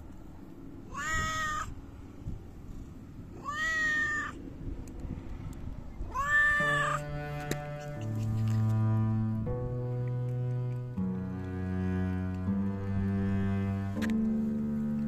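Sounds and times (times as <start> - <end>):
cat meowing: 0.9 - 1.7, 3.3 - 4.4, 6.1 - 7.0
slow background music: 6.6 - 15.0.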